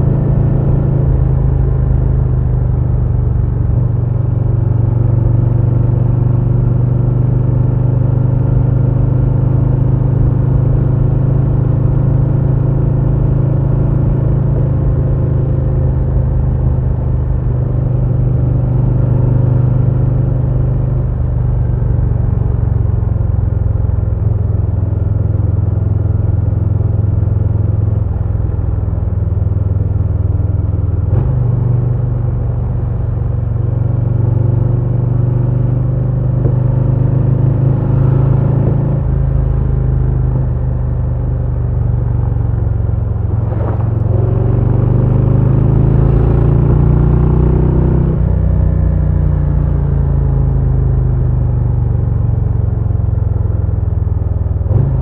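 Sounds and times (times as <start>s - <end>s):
motorcycle engine rumbling: 36.1s - 47.0s.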